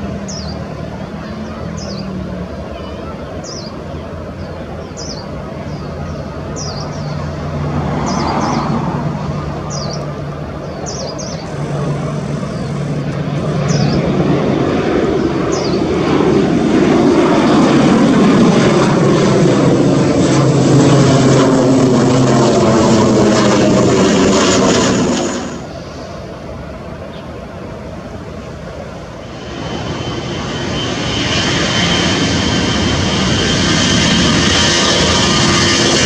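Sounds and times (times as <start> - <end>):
propeller airliner flying overhead: 0.0 - 36.0
bird chirping: 0.3 - 0.6, 4.4 - 7.3, 9.7 - 11.5.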